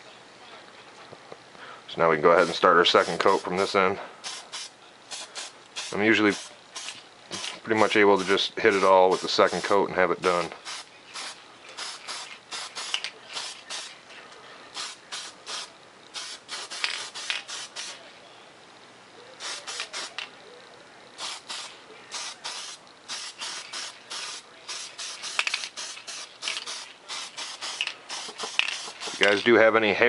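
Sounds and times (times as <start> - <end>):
spray paint can hissing: 2.3 - 7.6, 8.2 - 14.0, 14.7 - 18.0, 19.4 - 20.3, 21.2 - 29.4.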